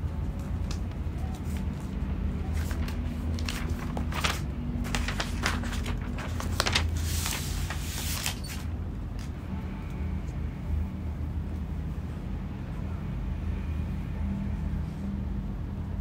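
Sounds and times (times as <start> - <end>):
steady low hum: 0.0 - 16.0
paper and cardboard rustling: 0.4 - 8.7.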